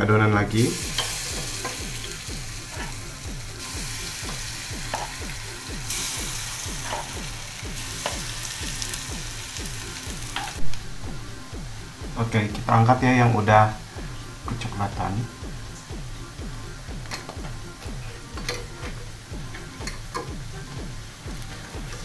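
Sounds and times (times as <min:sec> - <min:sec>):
batter sizzling in hot oil: 0:00.5 - 0:10.7.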